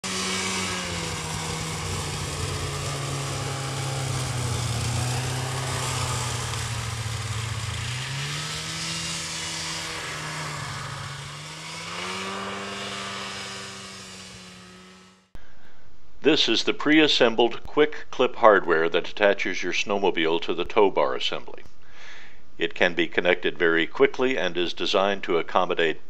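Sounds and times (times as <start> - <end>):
snowmobile engine running: 0.0 - 15.3.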